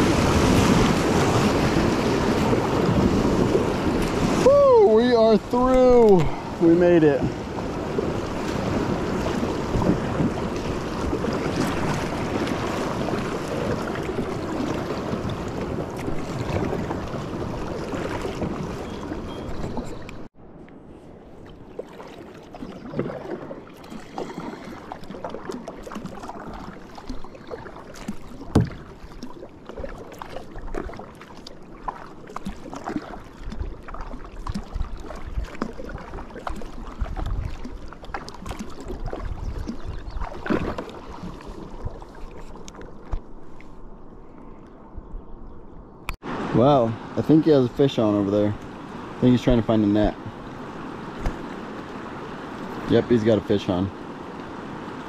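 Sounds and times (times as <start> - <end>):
knocks and clicks from boat: 7.2 - 20.3, 22.6 - 43.3, 51.2 - 51.5
river water rushing: 46.2 - 55.0.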